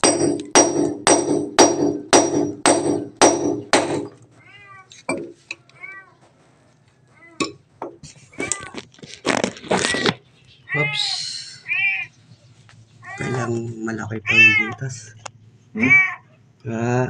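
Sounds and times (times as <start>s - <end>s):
hammer striking steel rod: 0.0s - 4.1s
kitten meowing: 14.2s - 14.8s, 15.8s - 16.2s.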